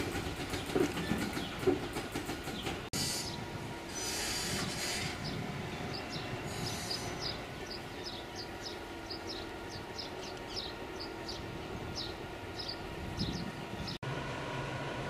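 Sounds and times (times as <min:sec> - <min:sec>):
diesel locomotive engines droning: 0:00.0 - 0:15.0
compressed-air hiss: 0:03.0 - 0:05.3
short high squeaks: 0:03.0 - 0:05.3.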